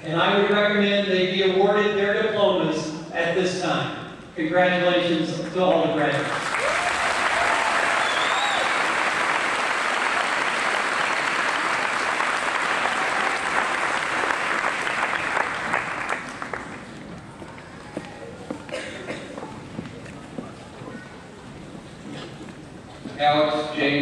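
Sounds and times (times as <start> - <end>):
audience applauding: 6.2 - 17.3.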